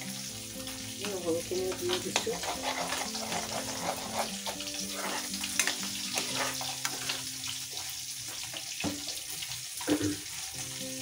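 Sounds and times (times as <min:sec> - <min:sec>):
paste sizzling in hot oil: 0:00.0 - 0:11.0
metal spoon scraping a pan: 0:01.6 - 0:07.9.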